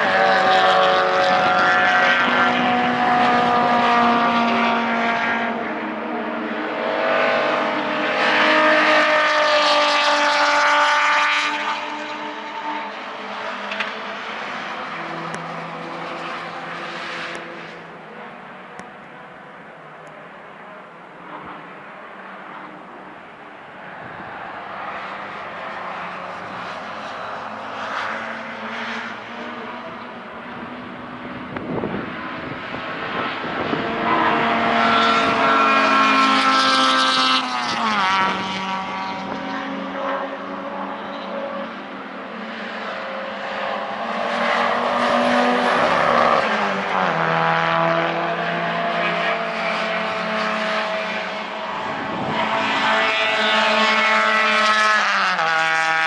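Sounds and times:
racing cars passing by: 0:00.0 - 0:56.0.

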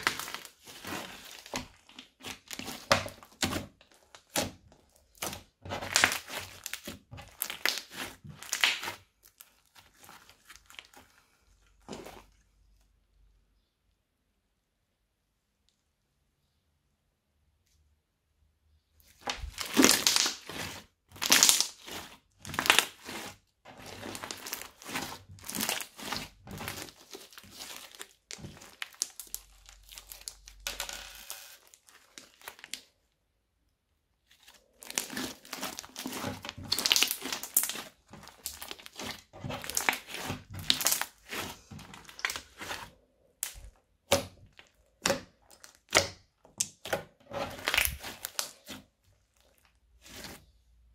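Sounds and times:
bead-filled slime crunching: 0:00.0 - 0:12.7, 0:19.1 - 0:33.0, 0:34.2 - 0:50.9.

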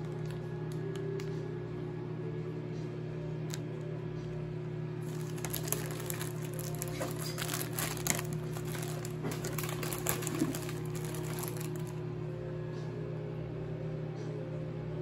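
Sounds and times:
steady low hum: 0:00.0 - 0:15.0
crinkling and crackling: 0:05.0 - 0:12.0.

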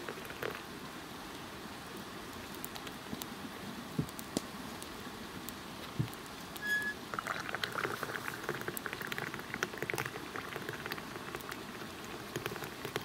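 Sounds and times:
liquid boiling in pot: 0:00.0 - 0:00.8, 0:05.8 - 0:13.0
short high peep: 0:06.6 - 0:07.0.

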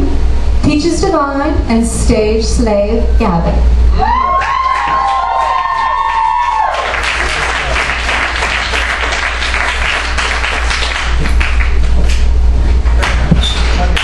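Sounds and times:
audience whooping: 0:03.9 - 0:11.8
audience clapping and cheering: 0:04.0 - 0:14.0.

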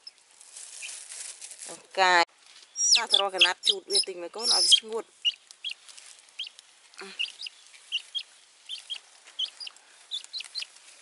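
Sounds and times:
baby chick peeping: 0:02.8 - 0:05.8, 0:06.4 - 0:10.8.

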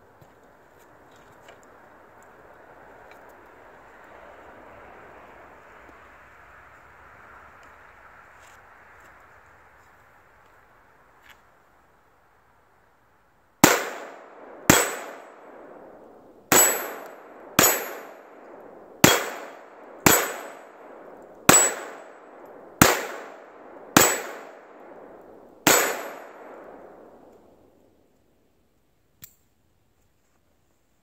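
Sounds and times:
pistol shots hitting steel targets: 0:13.6 - 0:27.3
metallic ring: 0:16.5 - 0:18.2.

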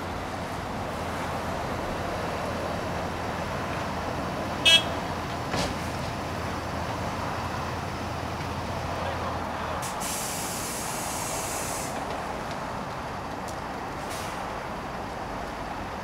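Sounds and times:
diesel machinery running: 0:00.0 - 0:16.0
truck air brakes hissing: 0:09.8 - 0:12.1, 0:14.0 - 0:14.6.

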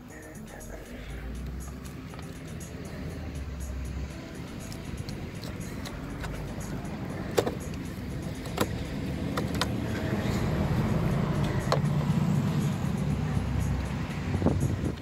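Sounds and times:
steady low rumble: 0:00.0 - 0:15.0
plastic clicks and knocks: 0:08.5 - 0:09.8.

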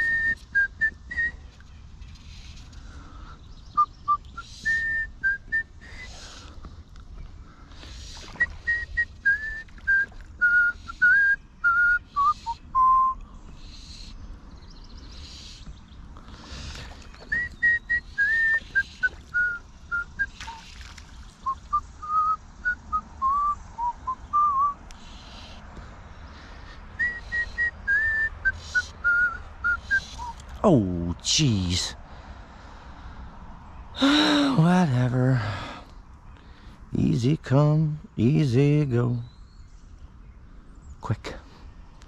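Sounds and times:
person whistling a tune: 0:00.0 - 0:01.4, 0:03.8 - 0:06.1, 0:08.3 - 0:13.2, 0:17.3 - 0:20.6, 0:21.4 - 0:24.8, 0:27.0 - 0:30.4.

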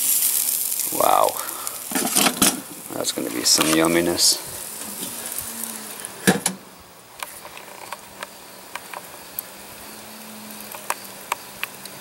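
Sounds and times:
meat sizzling over charcoal: 0:00.0 - 0:12.0
steel grill lid clunk: 0:01.9 - 0:02.9, 0:06.2 - 0:06.7.

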